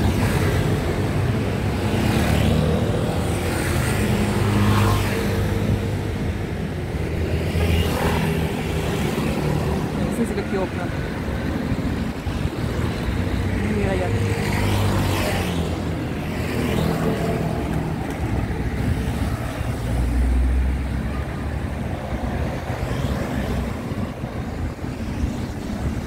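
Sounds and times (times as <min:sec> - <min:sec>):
vehicles passing close by: 0:00.0 - 0:26.0.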